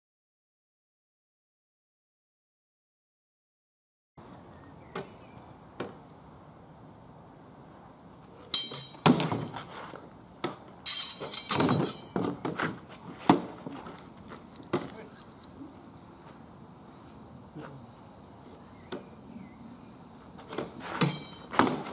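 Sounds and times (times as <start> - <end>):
swords clashing on shields: 8.6 - 9.7, 10.4 - 13.6, 20.5 - 21.9.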